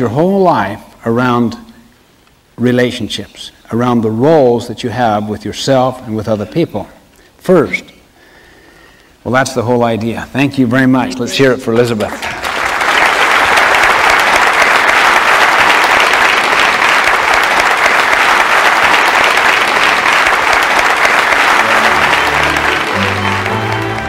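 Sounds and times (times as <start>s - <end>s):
audience applauding: 12.0s - 24.0s.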